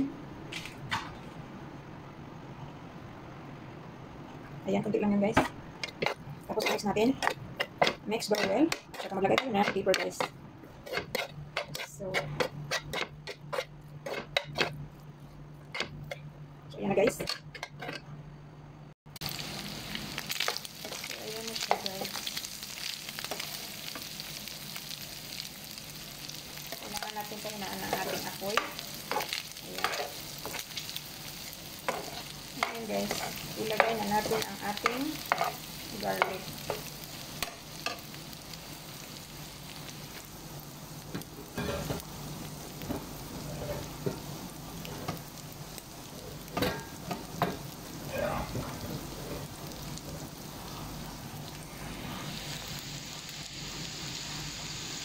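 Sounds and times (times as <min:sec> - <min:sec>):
shrimp and onion sizzling in oil: 0:04.9 - 0:17.5, 0:19.1 - 0:55.0
metal spatula scraping a pan: 0:05.8 - 0:14.8.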